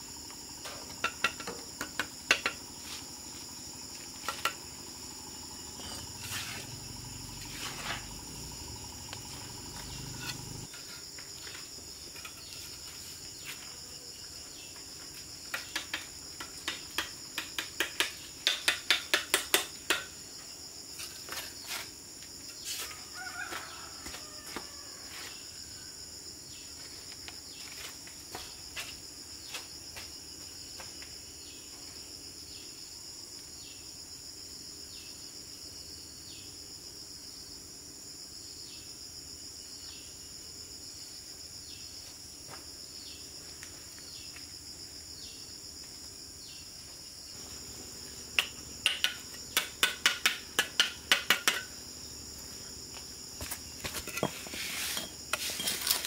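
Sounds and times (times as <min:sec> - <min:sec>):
shrill insect drone: 0:00.0 - 0:15.1
trowel tapping brick: 0:48.4 - 0:51.7
bricks knocking and clicking: 0:53.4 - 0:56.0.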